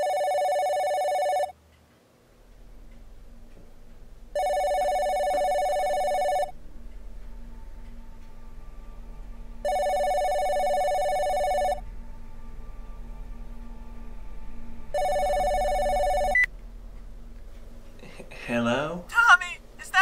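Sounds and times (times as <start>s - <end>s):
cordless phone ringing: 0.0s - 1.5s, 4.4s - 6.5s, 9.7s - 11.8s, 15.0s - 16.5s.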